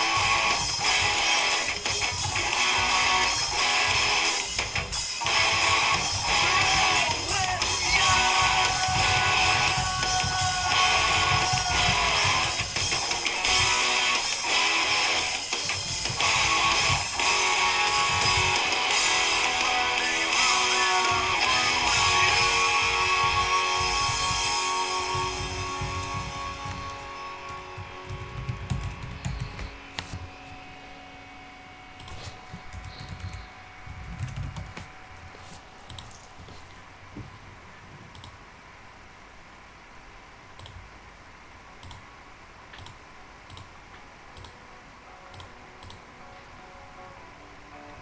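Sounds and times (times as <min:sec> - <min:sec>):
background music: 0:00.0 - 0:33.8, 0:44.4 - 0:48.0
keyboard typing clicks: 0:32.0 - 0:33.5, 0:38.1 - 0:38.4, 0:41.8 - 0:42.0, 0:42.7 - 0:43.7, 0:44.4 - 0:44.6, 0:45.3 - 0:46.0.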